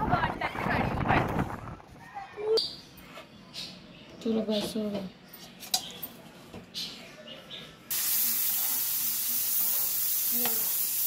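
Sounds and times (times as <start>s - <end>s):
loud frying sizzle: 7.9s - 11.0s.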